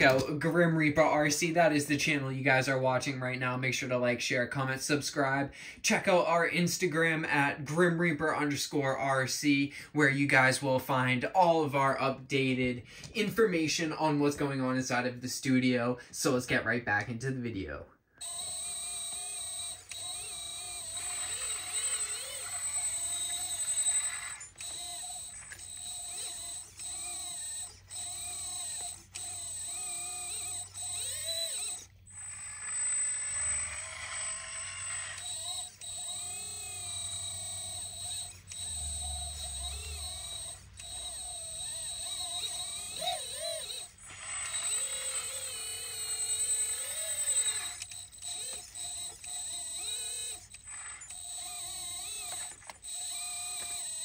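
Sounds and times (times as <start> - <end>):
hydraulic pump whine: 0.0 - 3.9, 18.2 - 54.0.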